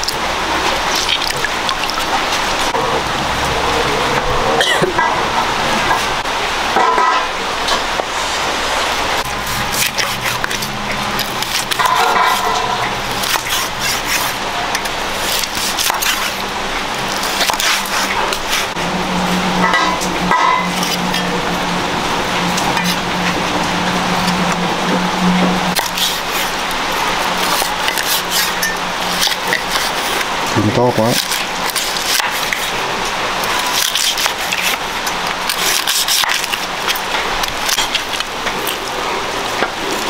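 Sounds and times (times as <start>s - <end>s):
low hum: 0.0s - 30.6s
hot oil sizzling and crackling: 5.0s - 40.0s.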